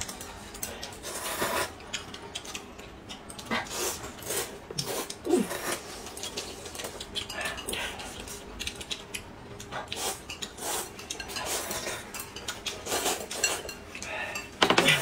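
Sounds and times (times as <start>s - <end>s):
people slurping noodles: 1.0s - 1.7s, 3.5s - 8.4s, 12.8s - 13.6s.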